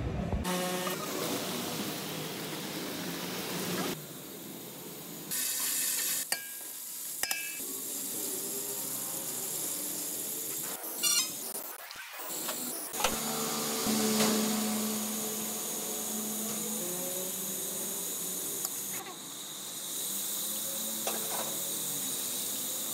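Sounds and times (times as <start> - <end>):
fat sizzling in a pot: 1.0 - 11.6, 13.4 - 22.9.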